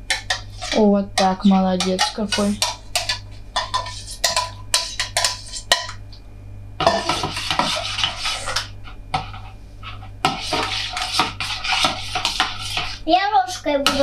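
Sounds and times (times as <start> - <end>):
utensil clinking against bowl: 0.1 - 6.0.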